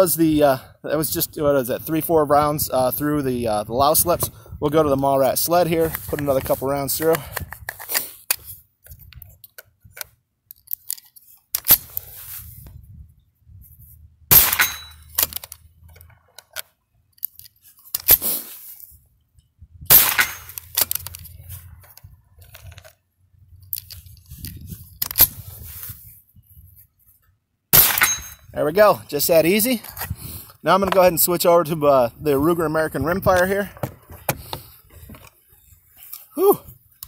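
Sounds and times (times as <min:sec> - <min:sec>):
wind rumble on microphone: 0:00.3 - 0:07.8, 0:12.4 - 0:14.3, 0:18.9 - 0:19.9, 0:21.2 - 0:27.0, 0:29.9 - 0:31.2, 0:32.0 - 0:35.2
metallic clicks of rifle action: 0:05.8 - 0:12.1, 0:14.4 - 0:18.2, 0:19.4 - 0:23.0, 0:23.6 - 0:25.4
rifle shots: 0:14.3 - 0:15.3, 0:19.9 - 0:20.5, 0:27.7 - 0:28.3.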